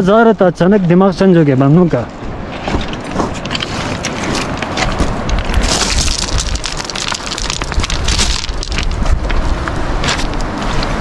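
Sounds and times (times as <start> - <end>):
wind rumbling on microphone: 0.6 - 11.0
footsteps crunching on gravel: 2.5 - 11.0.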